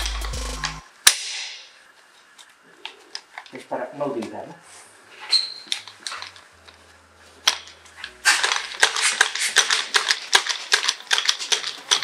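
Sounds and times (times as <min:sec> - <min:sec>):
belt gear clattering and clicking: 0:07.5 - 0:12.0.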